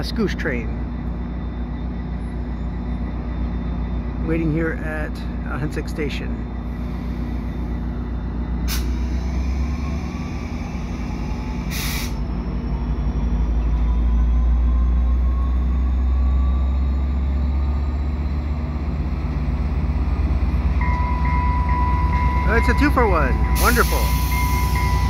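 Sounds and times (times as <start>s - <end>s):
diesel locomotive rumbling: 0.0s - 25.0s
air hiss: 11.7s - 12.2s
electronic beeping tone: 20.8s - 25.0s.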